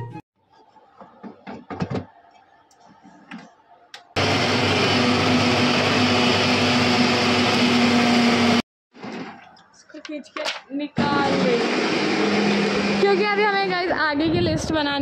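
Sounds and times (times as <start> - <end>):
mixer grinder motor whirring: 4.2 - 9.1, 11.0 - 13.4.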